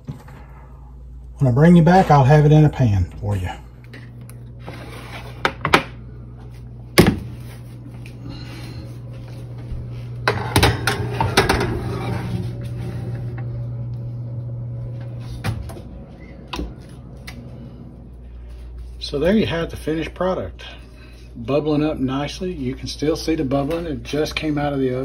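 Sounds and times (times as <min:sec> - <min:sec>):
steady low hum: 0:00.0 - 0:25.0
dish scraping on metal oven rack: 0:10.2 - 0:13.4
oven door shutting: 0:10.2 - 0:13.7.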